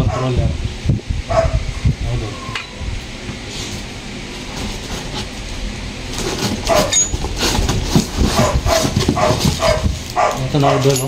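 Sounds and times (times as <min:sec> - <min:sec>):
dog barking: 0:00.0 - 0:00.4, 0:01.3 - 0:01.6, 0:06.7 - 0:07.0, 0:08.4 - 0:11.0
cardboard box being handled: 0:06.1 - 0:10.2.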